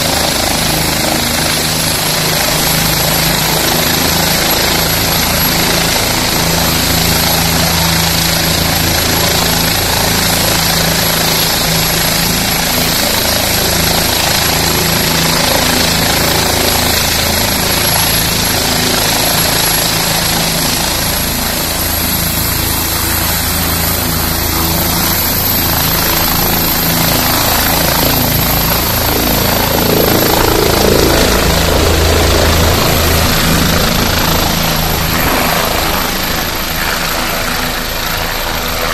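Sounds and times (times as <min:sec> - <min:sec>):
helicopter rotor beat: 0:00.0 - 0:38.9
turbine whine: 0:00.0 - 0:38.9.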